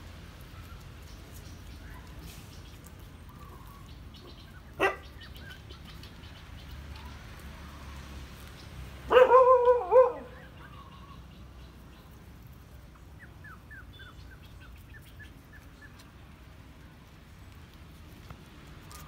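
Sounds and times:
puppy yelping: 9.1s - 10.4s.

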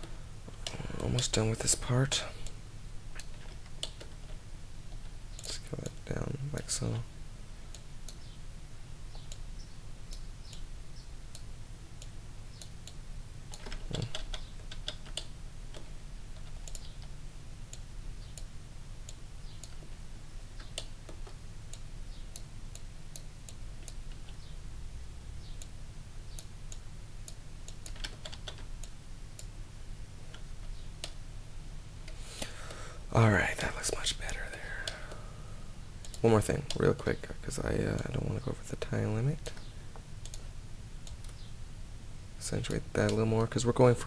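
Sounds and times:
steady low hum: 0.0s - 44.0s
keyboard and mouse clicking: 3.2s - 6.0s, 11.3s - 17.2s, 20.6s - 24.6s, 25.4s - 29.5s, 30.3s - 31.2s, 39.4s - 41.5s.

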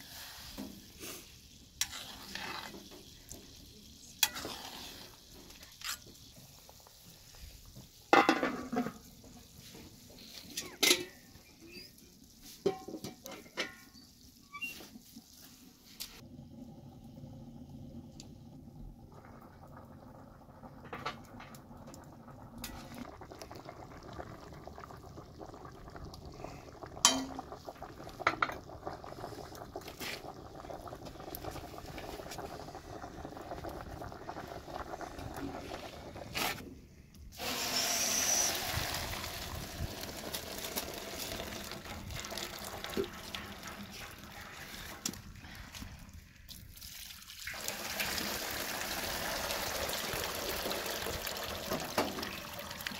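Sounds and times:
liquid being poured: 0.0s - 3.5s, 18.0s - 36.4s, 37.4s - 52.9s.

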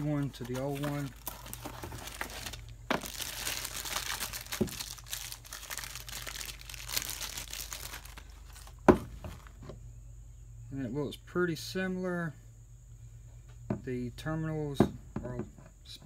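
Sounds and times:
plastic bag crinkling: 0.0s - 9.6s.

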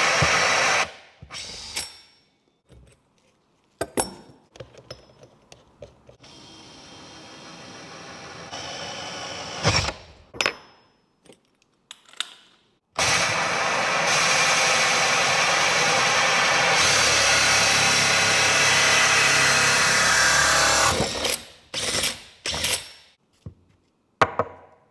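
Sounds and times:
drill hole saw cutting wood: 0.0s - 1.9s, 6.2s - 10.0s, 13.0s - 22.7s
drill whirring quietly: 0.0s - 1.9s, 6.2s - 10.0s, 13.0s - 22.6s.

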